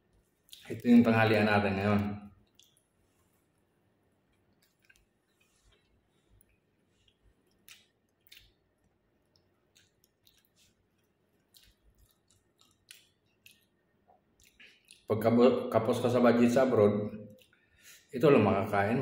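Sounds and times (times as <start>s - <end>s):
man chewing bread: 2.4s - 15.1s, 17.3s - 18.1s.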